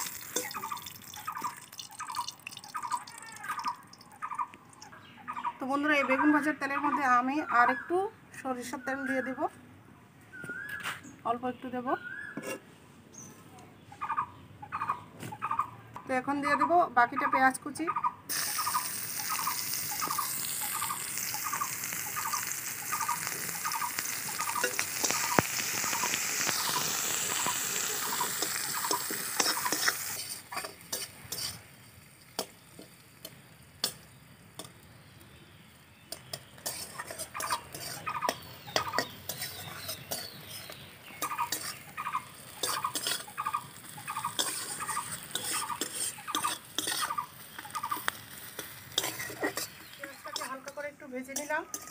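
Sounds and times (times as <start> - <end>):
onion sizzling in oil: 0.0 - 4.8, 18.3 - 51.9
metal spatula scraping a pan: 12.4 - 12.6, 24.4 - 25.5, 28.0 - 34.0, 36.1 - 43.4, 44.3 - 51.9.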